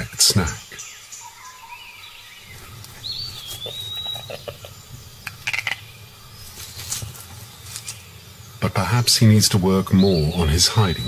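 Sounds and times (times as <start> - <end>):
crackling clicks in dry leaves: 2.6 - 4.1, 6.4 - 8.1.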